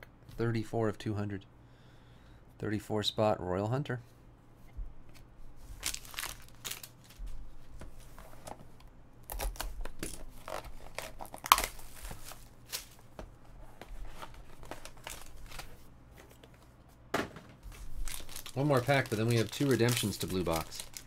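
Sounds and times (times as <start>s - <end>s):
sharp loud plastic crackle: 5.8s - 7.2s, 9.3s - 13.0s, 17.7s - 21.0s
shrink wrap tearing and crinkling: 5.8s - 7.3s, 9.2s - 13.1s, 14.1s - 15.8s, 17.7s - 21.0s.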